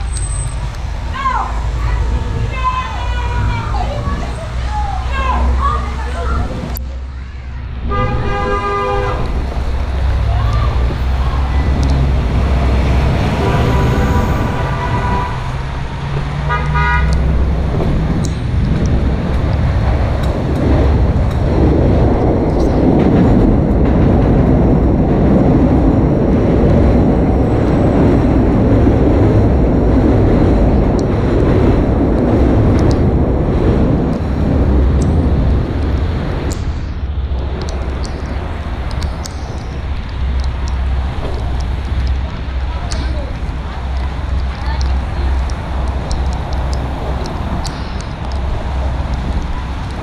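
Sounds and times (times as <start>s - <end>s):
traffic rushing: 0.0s - 50.0s
vehicle horn: 7.8s - 9.4s, 13.3s - 15.7s, 16.4s - 17.2s.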